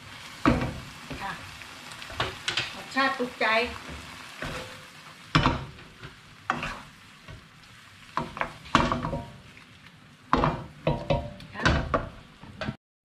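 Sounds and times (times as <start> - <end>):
food sizzling: 0.0 - 12.8
wooden spatula scraping a pan: 3.7 - 9.8.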